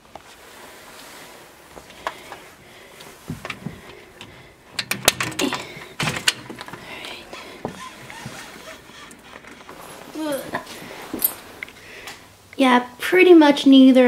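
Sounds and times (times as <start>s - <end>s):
door handle and latch clicking: 3.3s - 9.8s.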